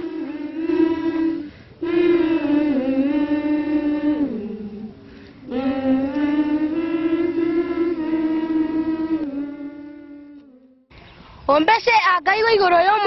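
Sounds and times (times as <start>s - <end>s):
person singing long notes: 0.0s - 10.9s.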